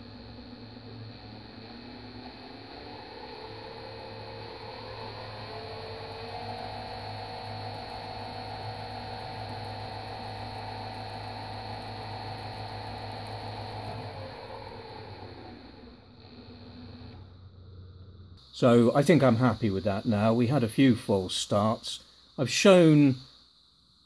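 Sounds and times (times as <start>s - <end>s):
lathe motor whine: 0.0s - 18.8s.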